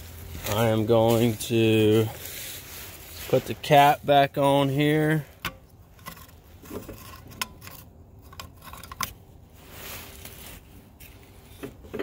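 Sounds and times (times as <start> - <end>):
metal cap clicks and scrapes: 5.4 - 9.2.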